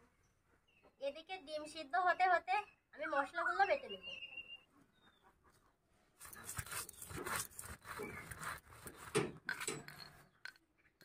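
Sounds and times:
stone roller grinding spices: 6.2 - 10.6.

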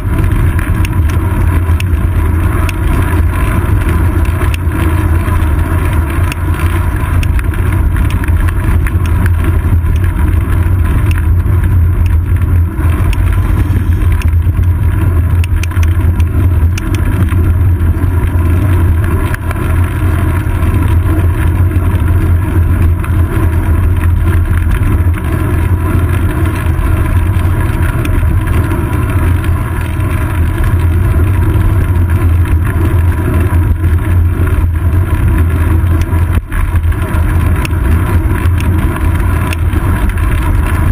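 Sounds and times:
road vibration rumble: 0.0 - 40.9
small ticks: 0.2 - 12.2, 12.9 - 14.4, 15.4 - 17.4, 22.8 - 40.9
wind buffeting: 6.9 - 21.5.

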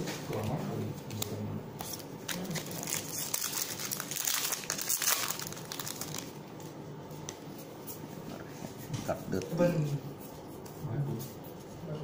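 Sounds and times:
foil wrapper crinkling: 1.9 - 6.4.

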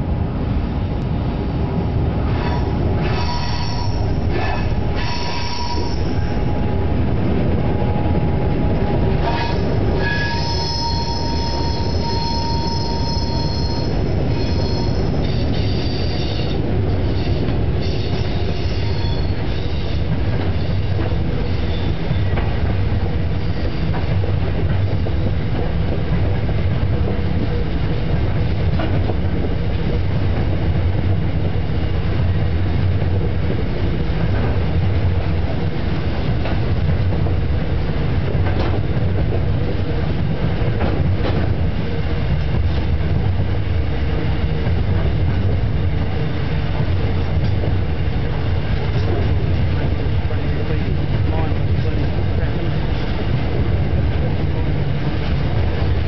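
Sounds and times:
locomotive engine drone: 0.0 - 56.0
rumbling wheels: 0.0 - 56.0
high wheel squeal: 2.4 - 6.6, 9.2 - 22.4, 23.3 - 24.1.

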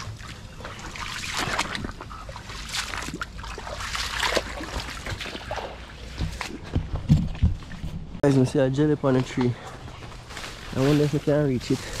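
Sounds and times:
creek water trickling: 0.0 - 6.7
water splashes: 0.0 - 6.8, 10.5 - 12.0.

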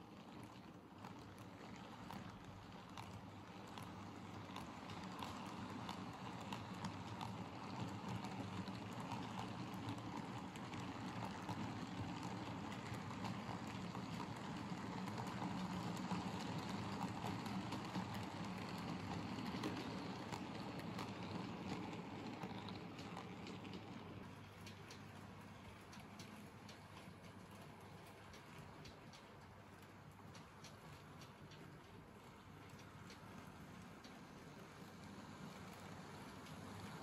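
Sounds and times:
model train wheels rumbling: 0.0 - 37.0
light irregular clicking: 16.6 - 34.2.

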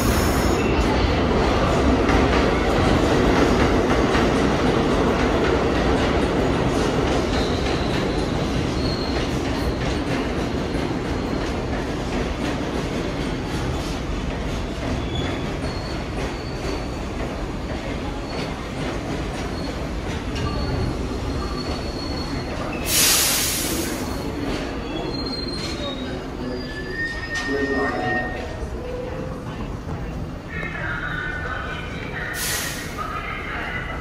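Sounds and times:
subway train rumbling: 0.0 - 34.0
air hiss: 22.8 - 24.2, 32.4 - 33.0
high-pitched wheel squeals: 24.8 - 29.0.

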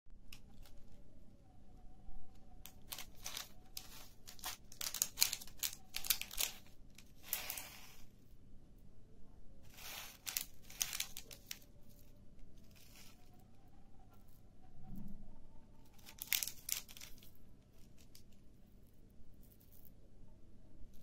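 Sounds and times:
plastic bag crinkling: 2.6 - 8.1, 9.7 - 13.4, 15.9 - 18.4.

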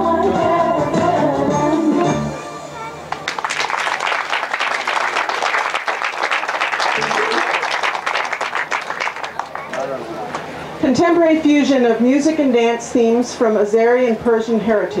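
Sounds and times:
audience applauding: 3.1 - 10.4.

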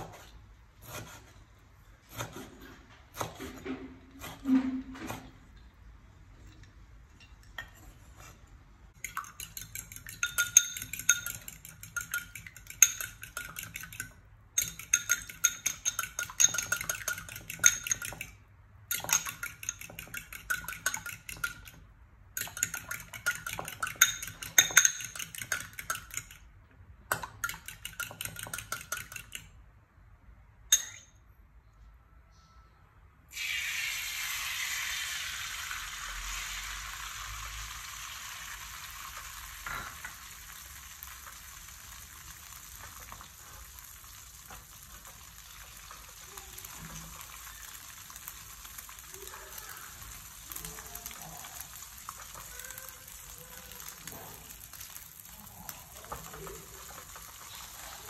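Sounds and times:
fork clinking against bowl: 9.0 - 21.8, 22.4 - 26.4.

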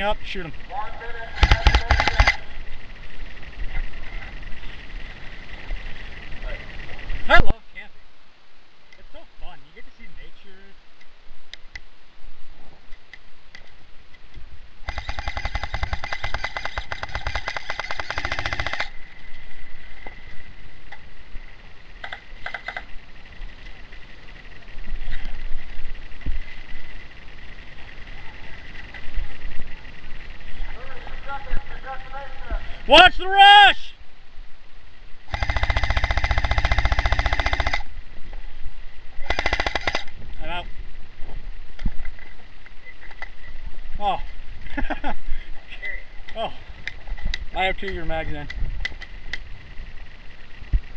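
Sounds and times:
gearbox whining: 0.0 - 7.4, 13.5 - 33.3, 35.0 - 44.8
airsoft gun firing full auto: 1.4 - 2.5, 14.8 - 19.0, 35.3 - 37.9, 39.2 - 40.1.

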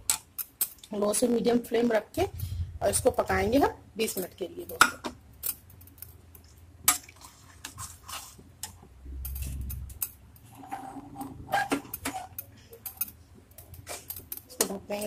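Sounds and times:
low rumble: 2.2 - 4.0
metal spoon scraping a steel pan: 6.9 - 15.0.

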